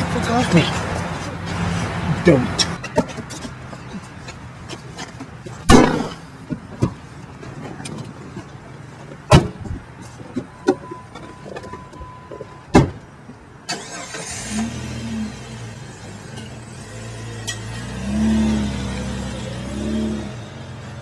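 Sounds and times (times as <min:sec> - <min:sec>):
car engine starting: 0:13.6 - 0:21.0.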